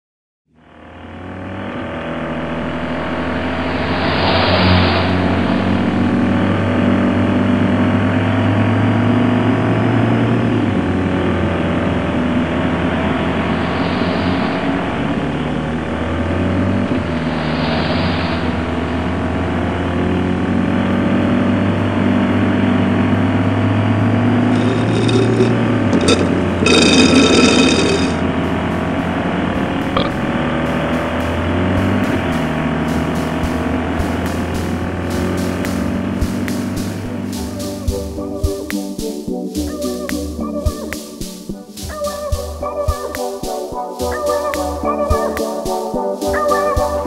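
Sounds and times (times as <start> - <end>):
car engine drone: 0.5 - 37.6
road noise: 0.6 - 38.1
rushes of noise: 3.0 - 6.6, 24.4 - 28.3.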